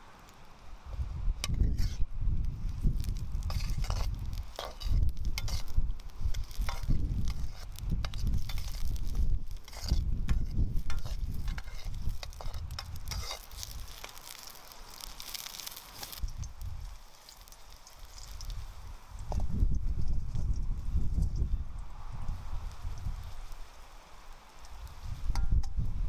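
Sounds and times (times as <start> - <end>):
fire crackling: 0.0 - 26.0
vegetables sizzling in a wok: 0.0 - 26.0
spoon scraping a wok: 1.4 - 2.1, 2.8 - 18.4.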